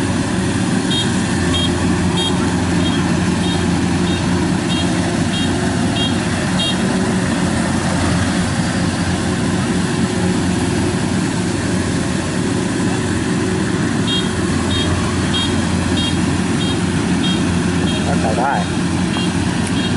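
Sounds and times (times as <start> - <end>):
harvester diesel engine: 0.0 - 19.9.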